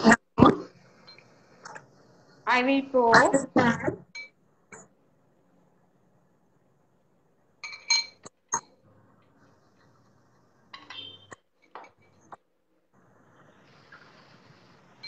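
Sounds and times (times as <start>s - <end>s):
glass and ceramic clinking: 4.1s - 4.4s, 7.6s - 8.8s, 10.8s - 12.3s.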